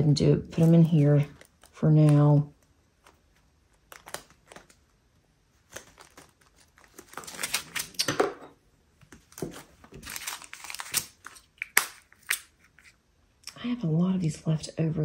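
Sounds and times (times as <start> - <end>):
plastic bags crinkling: 0.4 - 8.1, 9.2 - 12.9.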